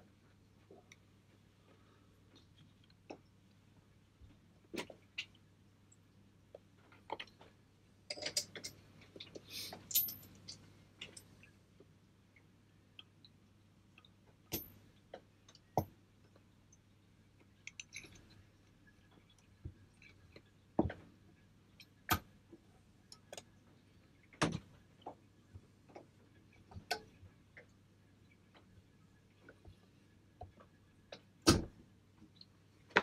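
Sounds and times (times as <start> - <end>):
metallic clicks and clinks: 8.1 - 8.8, 9.9 - 11.4.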